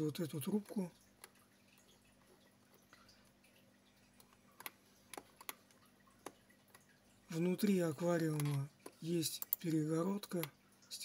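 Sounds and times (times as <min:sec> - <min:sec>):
faint steady hum: 0:00.0 - 0:11.0
computer mouse clicks: 0:04.2 - 0:06.9, 0:07.6 - 0:10.5.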